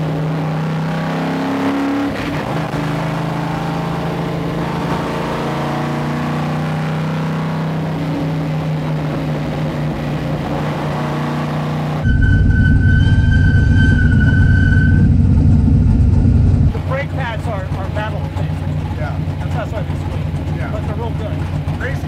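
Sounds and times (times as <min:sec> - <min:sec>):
race car engine cruising: 0:00.0 - 0:22.0
steady high whine: 0:12.0 - 0:16.7
heavy exhaust rumble: 0:12.0 - 0:22.0.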